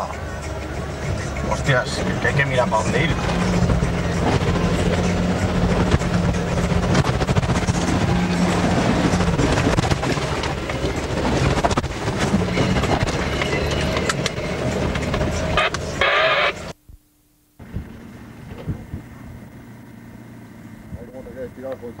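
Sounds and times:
engine running under load: 0:00.0 - 0:16.8, 0:17.6 - 0:22.0
rattling: 0:00.3 - 0:16.0.

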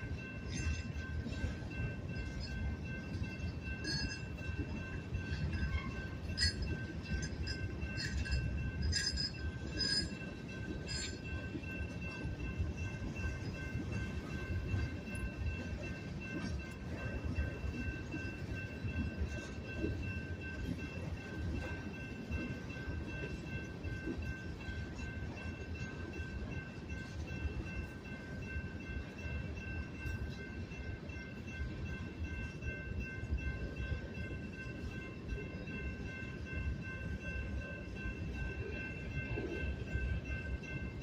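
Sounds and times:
freight train cars rumbling: 0:00.0 - 0:41.0
thin steady high tone: 0:00.0 - 0:41.0
metallic clinks and squeals: 0:00.2 - 0:28.2.

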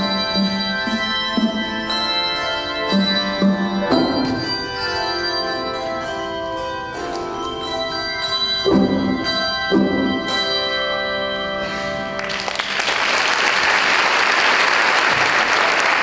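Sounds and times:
handbell chords ringing: 0:00.0 - 0:12.2
audience applauding: 0:12.2 - 0:16.0.

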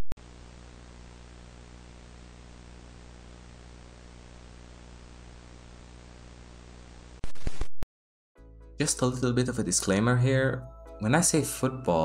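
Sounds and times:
low electrical hum: 0:00.2 - 0:07.2
static hiss: 0:00.2 - 0:07.7.

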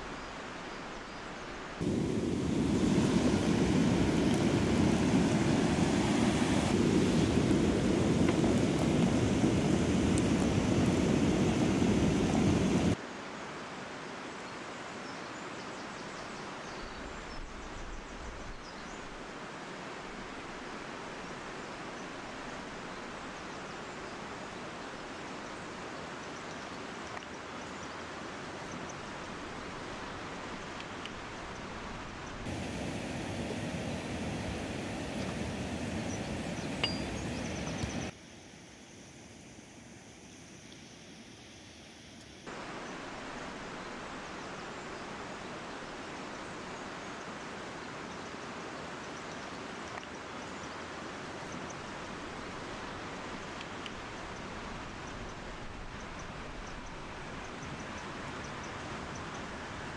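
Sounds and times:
mountain stream rushing: 0:01.4 - 0:15.0, 0:19.0 - 0:38.2, 0:42.4 - 0:59.9
river rushing over rocks: 0:01.8 - 0:13.8, 0:32.4 - 0:38.2
faint click: 0:37.6 - 0:38.1.

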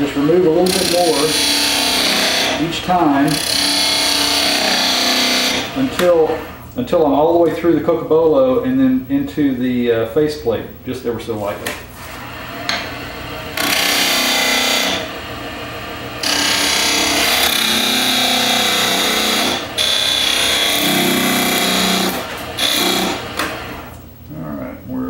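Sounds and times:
chisel cutting wood on lathe: 0:00.0 - 0:06.6, 0:12.0 - 0:24.0
wood lathe running: 0:00.0 - 0:06.6, 0:12.0 - 0:24.0.

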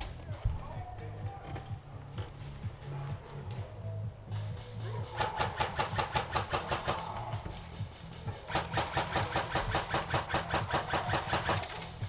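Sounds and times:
airsoft gun rapid fire: 0:04.8 - 0:07.4, 0:08.4 - 0:12.0.

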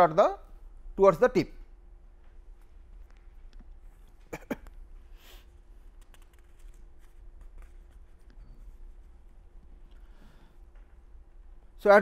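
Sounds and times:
low electrical hum: 0:00.0 - 0:12.0
paper rustle: 0:05.8 - 0:09.4.

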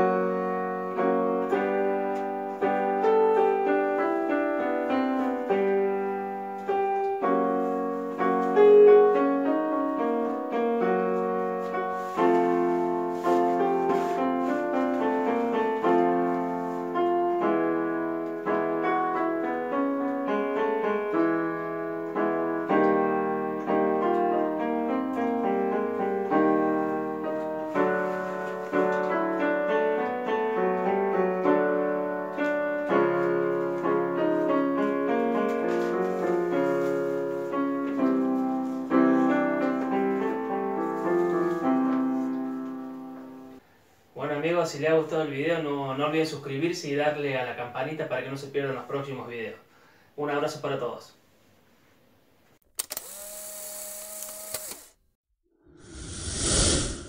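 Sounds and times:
electronic keyboard playing chords: 0:00.0 - 0:12.0.

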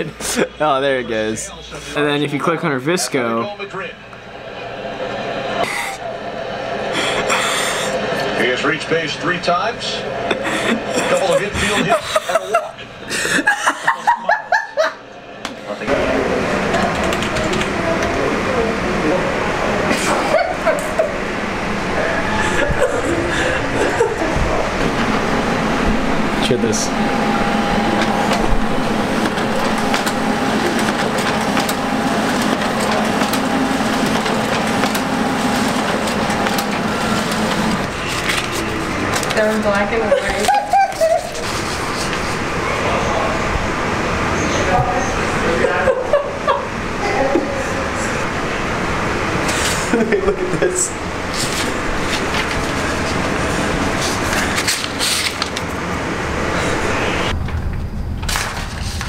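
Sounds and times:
steady rumbling noise: 0:00.0 - 0:13.6, 0:14.3 - 0:59.0
laser printer printing: 0:00.0 - 0:57.4
paper feed clicks: 0:16.6 - 0:18.2, 0:27.7 - 0:39.6, 0:51.3 - 0:55.8.

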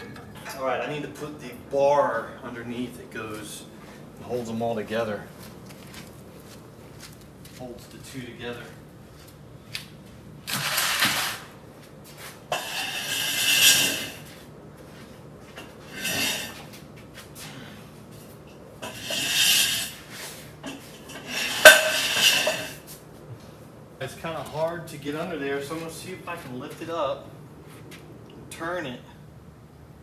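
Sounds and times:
metal scraping on metal: 0:12.5 - 0:14.3, 0:15.9 - 0:16.7, 0:18.8 - 0:22.8.

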